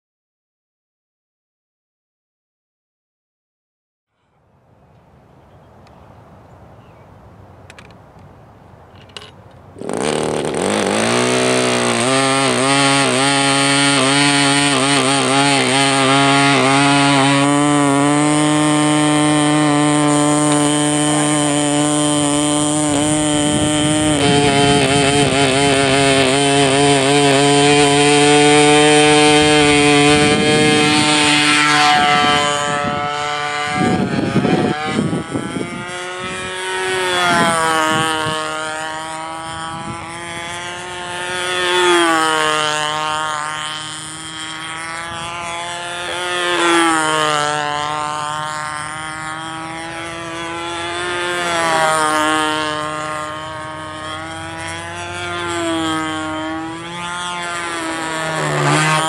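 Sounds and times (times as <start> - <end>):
model airplane engine: 4.1 - 59.0.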